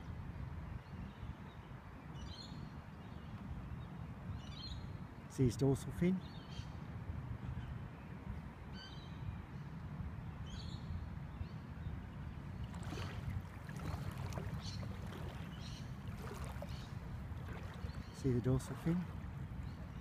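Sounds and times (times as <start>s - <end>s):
wind rumble on microphone: 0.0s - 5.3s, 6.2s - 20.0s
soft water splashes: 12.4s - 20.0s
ripples lapping at water's edge: 12.5s - 20.0s.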